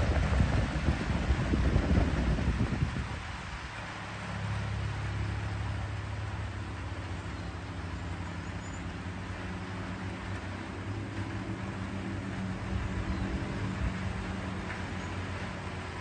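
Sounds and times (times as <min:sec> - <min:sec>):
distant engine droning: 0:00.0 - 0:16.0.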